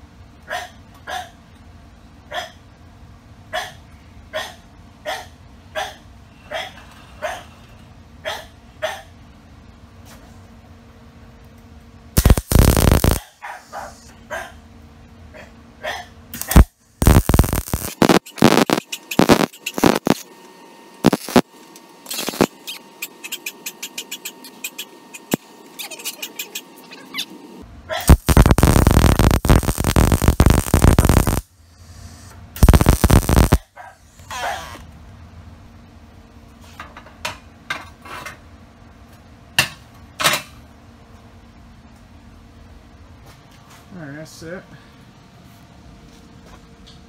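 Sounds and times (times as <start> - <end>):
welding arc crackling: 12.2 - 13.3, 16.4 - 20.3, 21.0 - 25.5, 28.0 - 31.5, 32.6 - 33.7.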